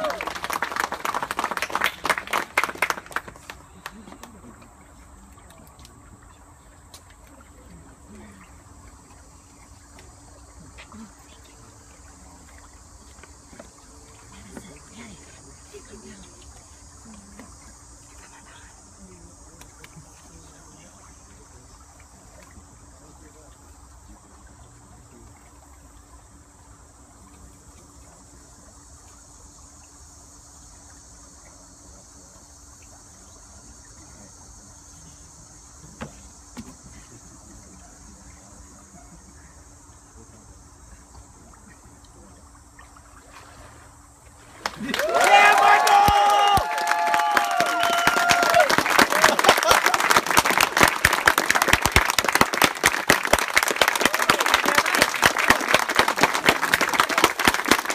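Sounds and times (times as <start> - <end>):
group applauding: 0.0 - 4.5, 44.6 - 57.9.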